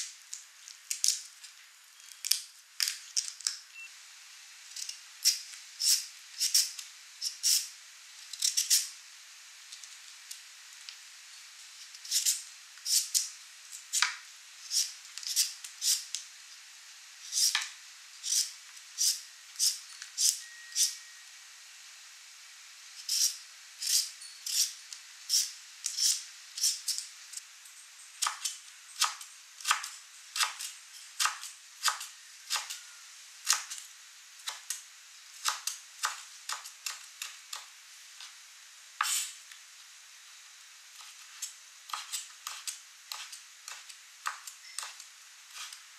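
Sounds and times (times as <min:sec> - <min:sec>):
peeler scraping carrot: 0:04.7 - 0:07.7, 0:08.3 - 0:08.9, 0:11.8 - 0:16.2, 0:17.2 - 0:17.6, 0:18.2 - 0:21.0, 0:23.0 - 0:27.1, 0:39.0 - 0:39.4, 0:41.0 - 0:45.9
knife cutting on wooden board: 0:39.0 - 0:39.3, 0:41.0 - 0:44.4.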